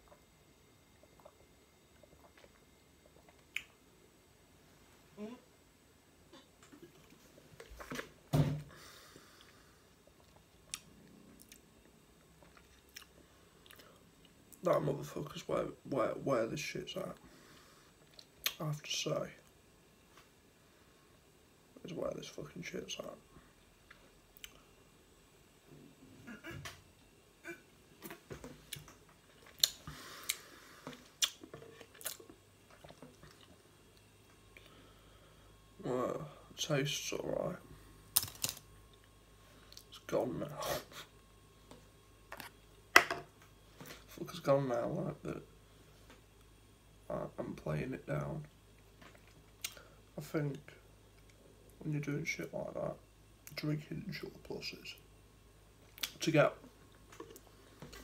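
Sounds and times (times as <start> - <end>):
tongue and lip clicks: 2.0 - 3.8, 28.0 - 30.4, 31.2 - 33.6, 55.9 - 56.2
breathy hiss: 8.7 - 10.0, 29.8 - 31.2, 34.6 - 36.7
soft breath: 8.7 - 10.0, 34.6 - 35.6.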